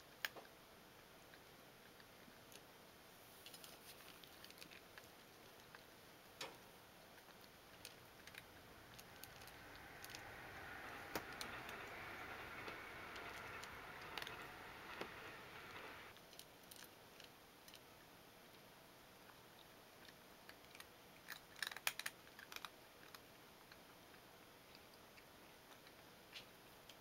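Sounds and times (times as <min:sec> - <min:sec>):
soft hiss: 0:00.0 - 0:16.4
cat crunching food: 0:03.4 - 0:17.9, 0:20.0 - 0:26.6.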